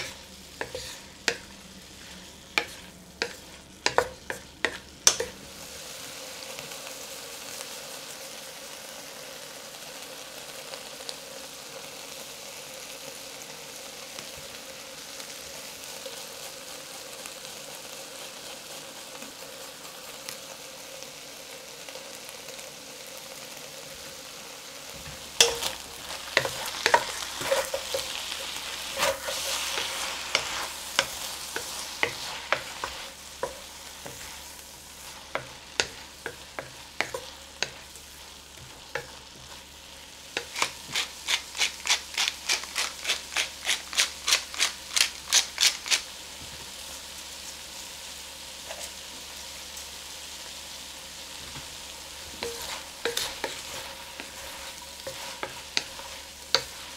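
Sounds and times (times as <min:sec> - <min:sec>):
wooden spatula scraping a wok: 0:00.0 - 0:05.4, 0:24.9 - 0:46.6, 0:51.4 - 0:56.9
food sizzling in a wok: 0:00.0 - 0:56.9.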